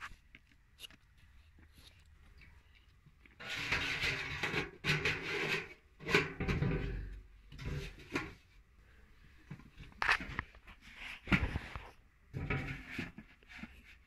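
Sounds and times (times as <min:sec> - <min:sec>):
metal rack scraping inside pot: 0:03.4 - 0:08.4, 0:12.3 - 0:14.0.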